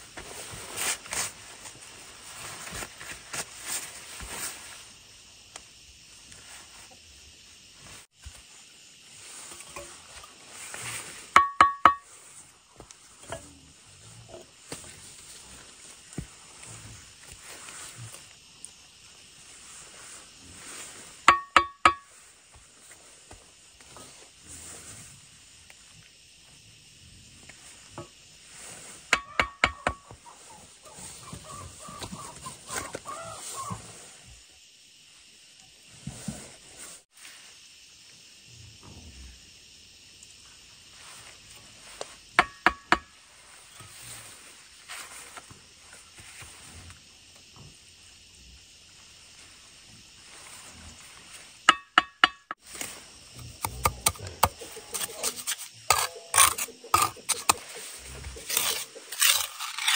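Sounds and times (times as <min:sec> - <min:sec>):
concrete blocks set into mortar: 0:11.3 - 0:12.1, 0:21.3 - 0:22.1, 0:29.1 - 0:30.2, 0:42.4 - 0:43.1, 0:51.7 - 0:52.6, 0:53.5 - 0:59.9
sharp ringing metal taps: 0:11.4 - 0:12.1, 0:21.3 - 0:22.0, 0:51.7 - 0:52.6
small scrapes and knocks: 0:53.6 - 0:59.9.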